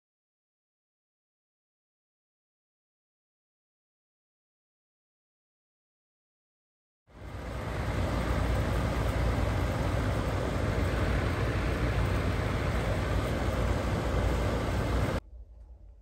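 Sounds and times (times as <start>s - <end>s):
exhaust fan air rush: 7.1s - 16.0s
low fan hum: 7.1s - 16.0s.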